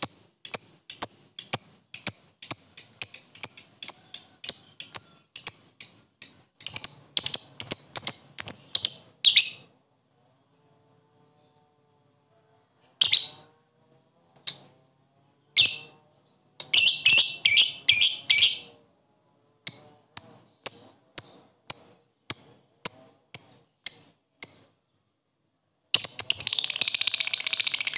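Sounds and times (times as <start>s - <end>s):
bird fast rattling trill: 0.0s - 9.5s, 26.0s - 27.9s.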